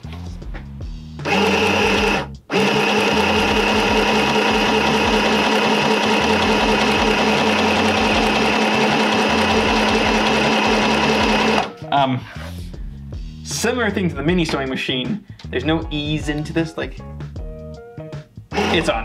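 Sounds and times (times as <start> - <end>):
sewing machine stitching: 1.2 - 11.7, 18.5 - 19.0.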